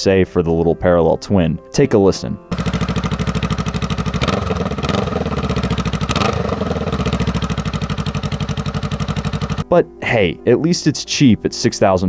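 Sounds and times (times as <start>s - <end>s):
motorcycle engine idling: 2.5s - 9.6s.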